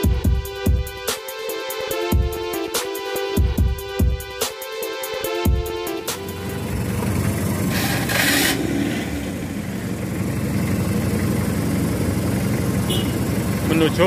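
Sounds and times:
engines rumbling: 0:05.5 - 0:14.0.

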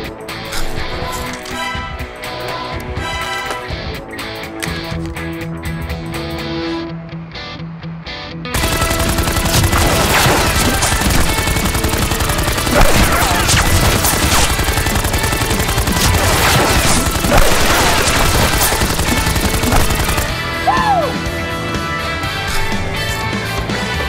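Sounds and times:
foam dart blaster firing rapidly: 0:08.6 - 0:20.4.

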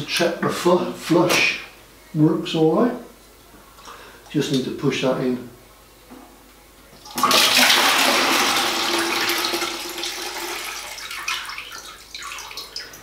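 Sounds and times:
toilet flush water rushing: 0:07.1 - 0:12.0.

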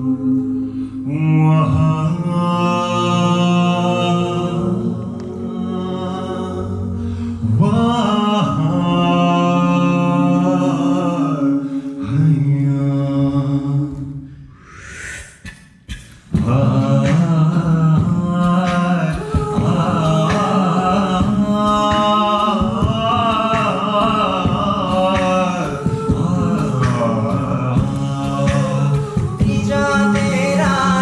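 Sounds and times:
a cappella group singing: 0:00.0 - 0:31.0
vocal percussion beat: 0:00.0 - 0:31.0.

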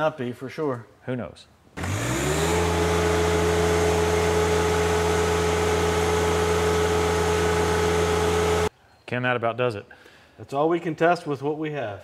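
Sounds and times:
diesel engine drone with whine: 0:01.8 - 0:08.7.

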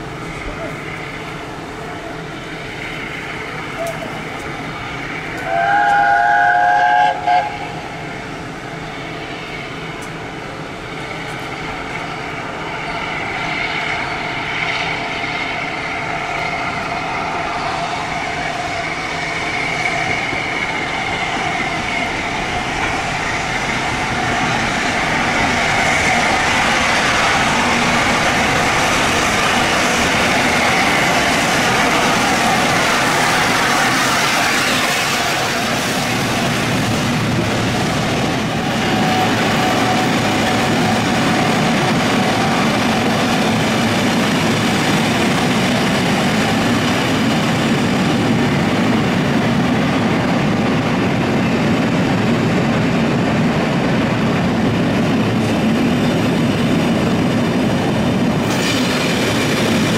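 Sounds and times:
steam locomotive running: 0:00.0 - 0:59.9
steam locomotive chime whistle: 0:05.4 - 0:07.8.

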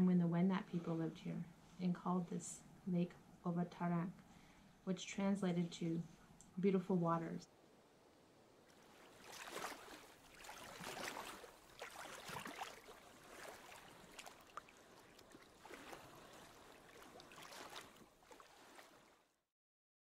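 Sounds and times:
faint water sloshing: 0:00.0 - 0:19.4.

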